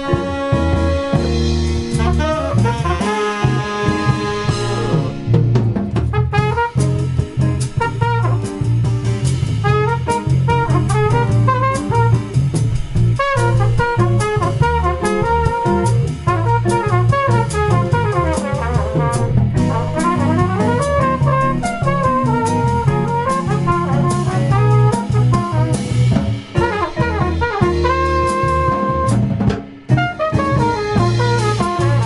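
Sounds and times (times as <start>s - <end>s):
trumpet runs: 0.0s - 5.4s, 6.0s - 32.0s
drums: 0.0s - 32.0s
electric bass: 0.0s - 32.0s
guitar: 0.0s - 32.0s
piano: 0.0s - 32.0s.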